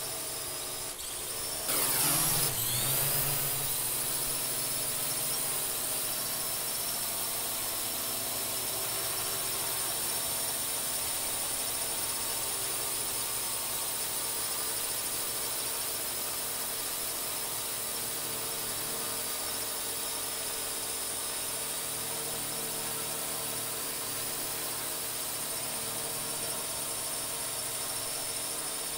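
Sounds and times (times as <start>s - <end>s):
drone propellers whining: 0.2s - 7.8s.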